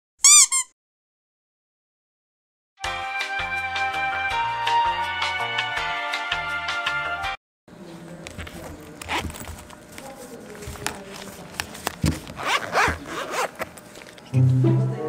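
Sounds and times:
zipper rasping: 8.4 - 9.7, 12.2 - 14.2.

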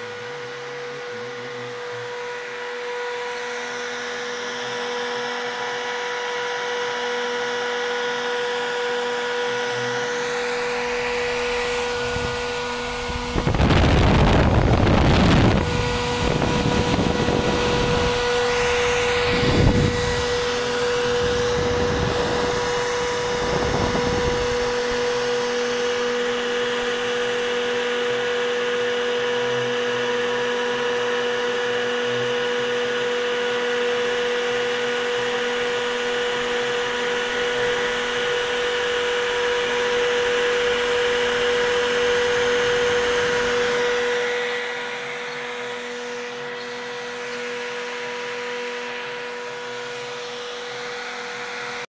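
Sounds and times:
cnc router spindle whine: 0.0 - 51.9.

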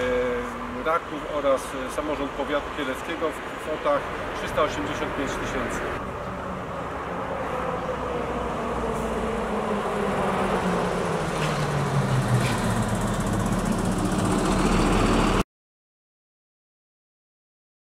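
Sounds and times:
passing traffic: 0.0 - 15.4
lorry driving past: 5.5 - 15.4.

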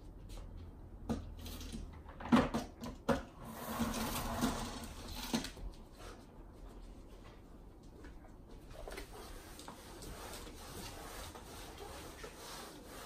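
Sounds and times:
mop bucket knocks and clatters: 1.0 - 5.6
spin mop whirring rattle: 3.4 - 5.6, 8.8 - 13.0.

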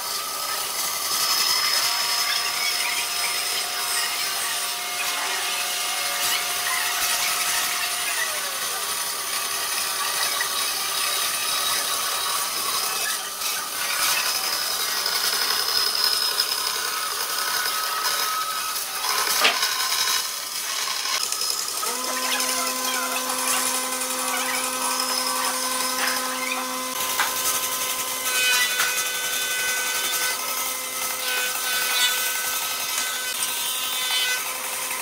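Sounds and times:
bandsaw cutting wood: 0.0 - 35.0.

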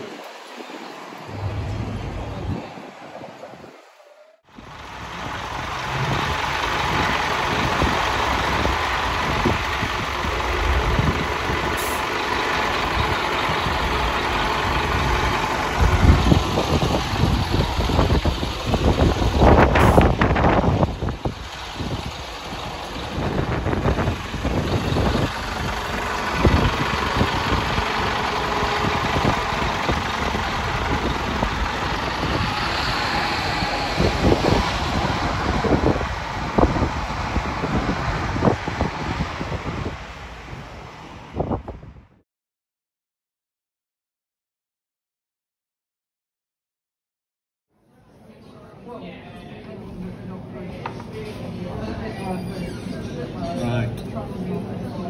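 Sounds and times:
wind buffeting microphone: 0.0 - 4.0, 4.6 - 42.2
diesel bus engine idling: 4.6 - 41.4.

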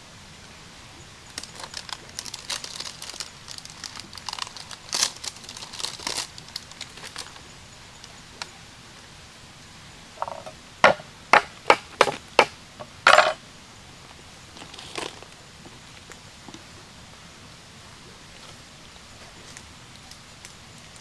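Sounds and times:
garlic skins crackling: 1.3 - 8.5, 14.5 - 15.4.

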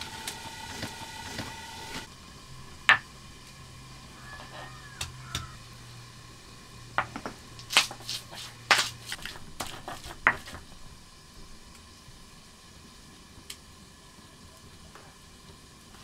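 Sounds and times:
stone pestle knocking on stone: 8.7 - 10.6.

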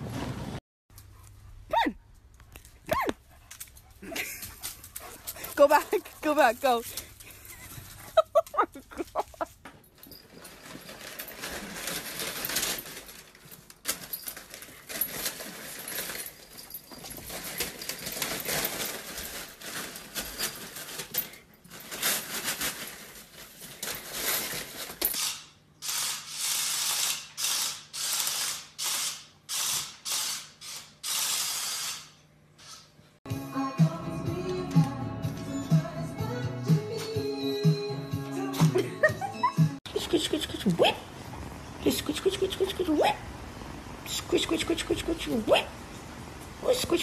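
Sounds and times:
rustling bursts: 10.2 - 25.0
wrapping paper crinkling and tearing: 10.4 - 16.5, 17.3 - 25.1.

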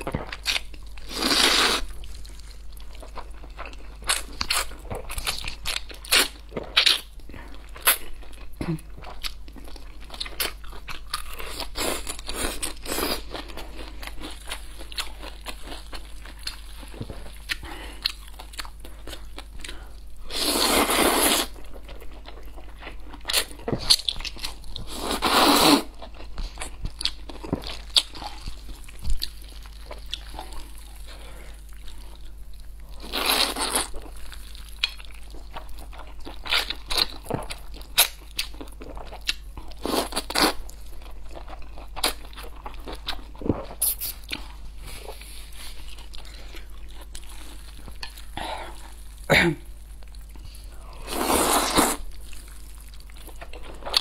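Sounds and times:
slurping noodles: 20.3 - 21.5, 51.1 - 52.0.

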